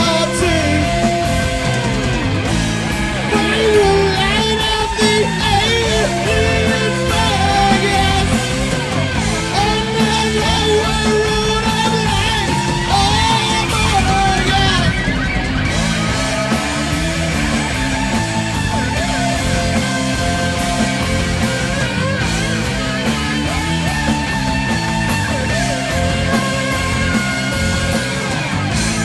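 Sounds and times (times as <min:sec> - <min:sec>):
shouted sung vocal: 0:00.0 - 0:01.5, 0:02.9 - 0:15.2
rock band playing loud: 0:00.0 - 0:29.0.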